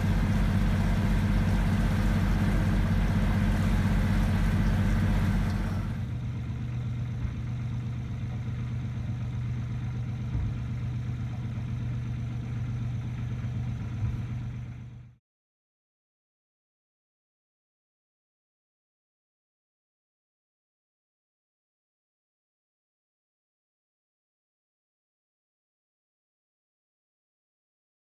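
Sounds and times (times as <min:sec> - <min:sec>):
boat engine pulsing: 0:00.0 - 0:06.2
steady low hum: 0:00.0 - 0:15.2.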